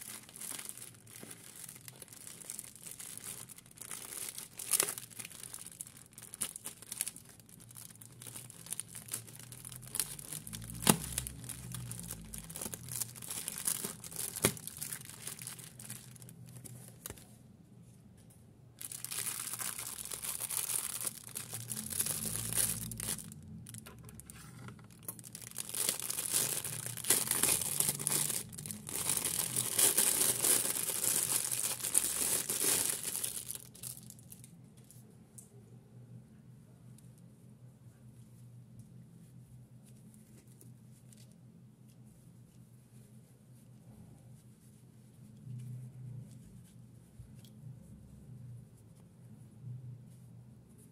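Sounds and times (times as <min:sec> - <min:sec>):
plastic packaging crinkling: 0:00.0 - 0:17.3, 0:18.8 - 0:34.9.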